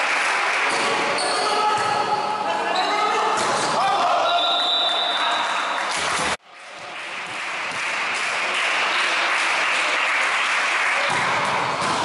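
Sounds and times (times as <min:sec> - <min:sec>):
spectators applauding: 0:05.0 - 0:12.0.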